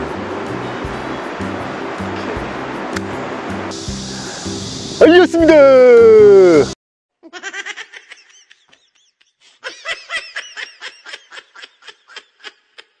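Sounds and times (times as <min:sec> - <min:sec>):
man laughing: 0:06.0 - 0:13.0.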